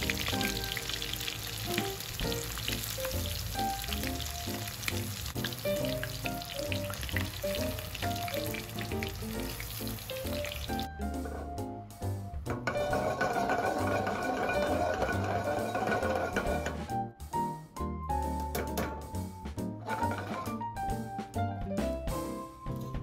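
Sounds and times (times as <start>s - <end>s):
fish deep-frying in oil: 0.0s - 10.9s, 12.6s - 16.8s
light background music: 0.0s - 23.0s.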